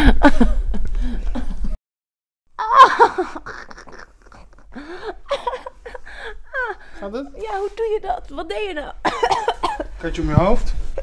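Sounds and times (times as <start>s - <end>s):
woman crying out strained: 2.6s - 4.1s
woman straining and groaning: 2.6s - 7.4s.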